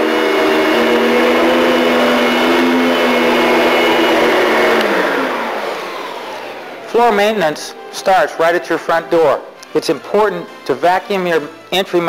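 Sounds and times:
vacuum cleaner running: 0.0s - 11.6s.

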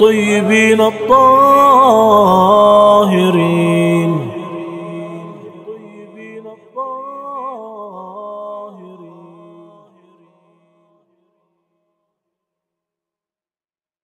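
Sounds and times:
wordless a cappella chant: 0.0s - 11.0s.

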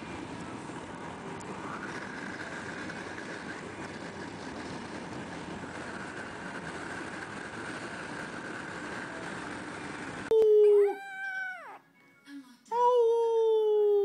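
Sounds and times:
wind and road noise in car: 0.0s - 10.3s
dog howling: 10.3s - 11.8s.

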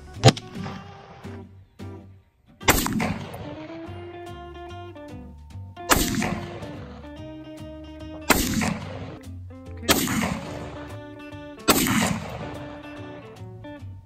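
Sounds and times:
background music: 0.0s - 14.0s
rifle shots ringing: 2.6s - 3.9s, 5.9s - 7.1s, 8.3s - 9.2s, 9.9s - 11.0s, 11.6s - 13.2s.

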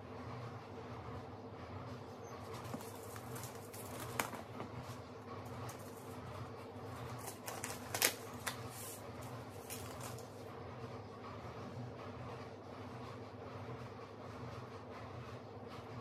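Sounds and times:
paper packet crinkling and clicking: 2.5s - 4.7s, 7.1s - 9.0s, 9.6s - 10.3s.

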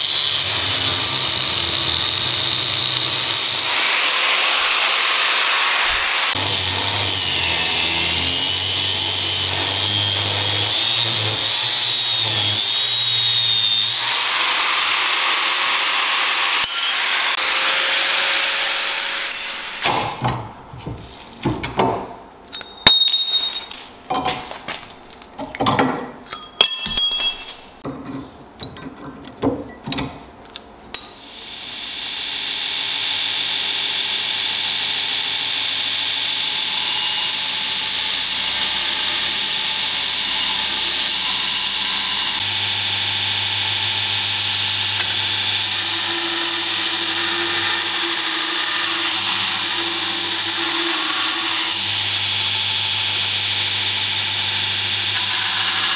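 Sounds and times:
angle grinder cutting steel: 0.0s - 19.9s, 31.3s - 55.9s
metal knocks and clanks: 19.3s - 31.1s.

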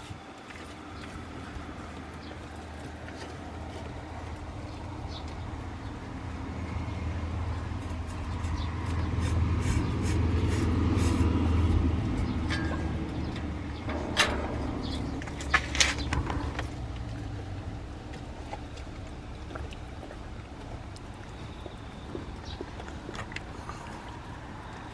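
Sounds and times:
low rumble: 4.0s - 22.1s.

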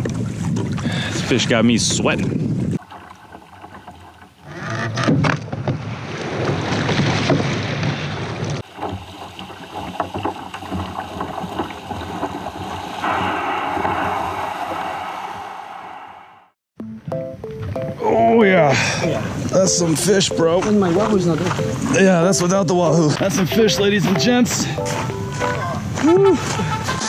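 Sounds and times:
wind on microphone: 0.0s - 2.8s, 11.4s - 16.6s
surf washing up a sand beach: 8.6s - 16.0s.

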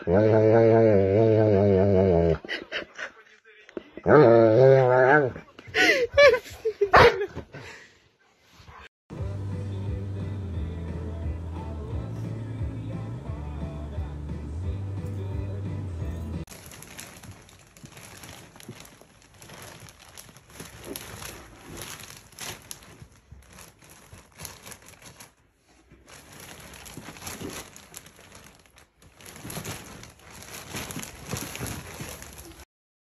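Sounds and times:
plastic wrapping crinkling: 16.4s - 32.7s.

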